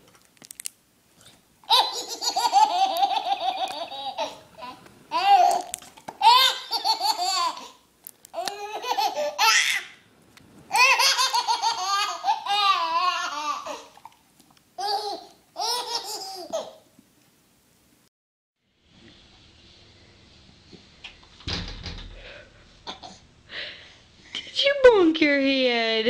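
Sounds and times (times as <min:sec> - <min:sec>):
baby belly-laughing: 0:01.6 - 0:07.8, 0:08.4 - 0:10.0, 0:10.7 - 0:14.0, 0:14.8 - 0:16.8.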